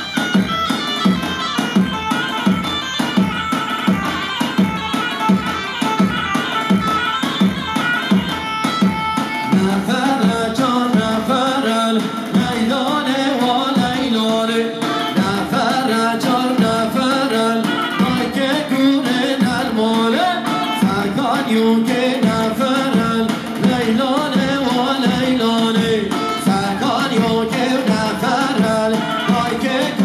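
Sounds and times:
dance music with drumbeat: 0:00.0 - 0:30.0
steady drumbeat: 0:00.0 - 0:30.0
person singing: 0:09.4 - 0:30.0.

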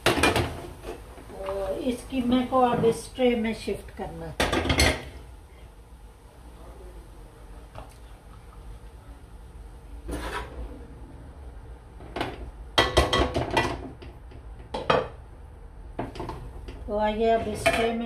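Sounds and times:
spoon scraping a metal pot: 0:10.1 - 0:10.6.

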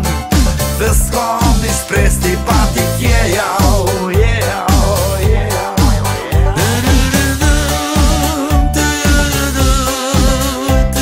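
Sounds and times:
song with steady beat: 0:00.0 - 0:11.0.

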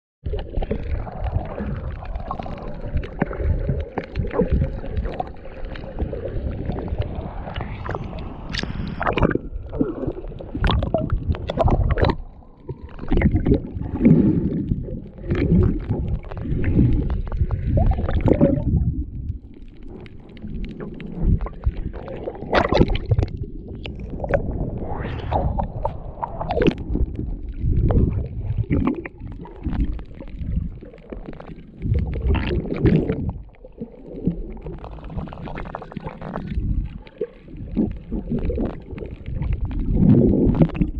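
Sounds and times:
water splash: 0:00.3 - 0:18.8, 0:20.8 - 0:36.6
muffled underwater sloshing: 0:00.3 - 0:40.9.

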